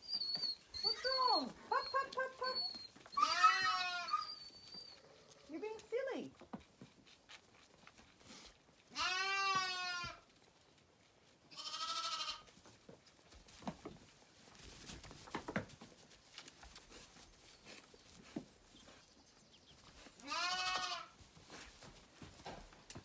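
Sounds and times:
lambs bleating: 3.1s - 4.4s, 8.9s - 10.2s, 11.5s - 12.5s, 20.2s - 21.2s.

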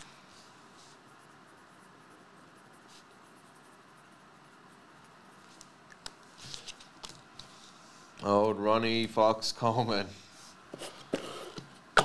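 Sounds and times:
pen scratching on paper: 0.7s - 5.6s, 10.8s - 11.6s.

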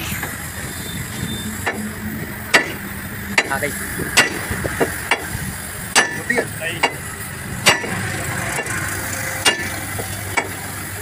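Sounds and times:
truck engine running: 0.0s - 11.0s
steel bar knocking on metal: 2.5s - 3.6s, 4.2s - 5.3s, 5.9s - 7.0s, 7.6s - 8.0s.

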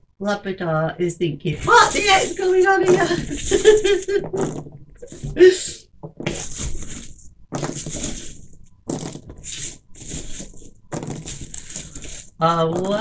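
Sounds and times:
packing peanuts rustling: 1.6s - 5.4s, 6.3s - 13.0s.

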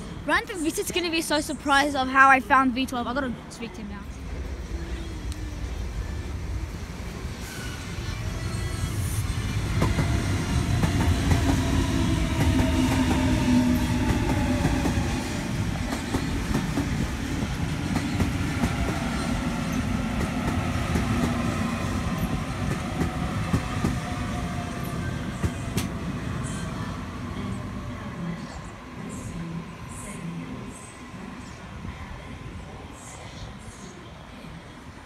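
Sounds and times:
train wheels rumbling: 3.2s - 28.6s.

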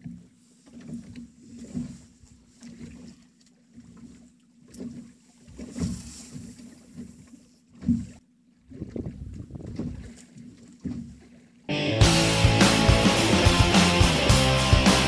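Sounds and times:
water slapping against boat hull: 0.0s - 11.7s.

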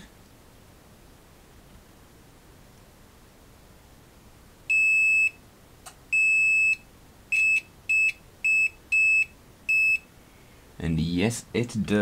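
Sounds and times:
multimeter beeping: 4.7s - 5.4s, 6.1s - 10.1s.

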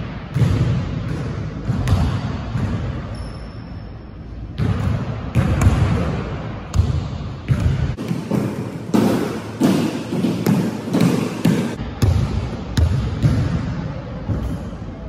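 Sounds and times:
basketball bouncing on hardwood floor: 0.3s - 3.0s, 6.7s - 13.6s.

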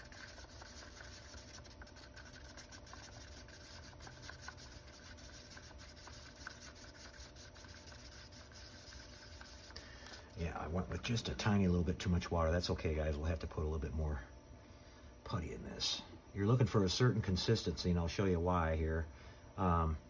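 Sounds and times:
tool scraping slurry in cup: 0.0s - 10.3s.

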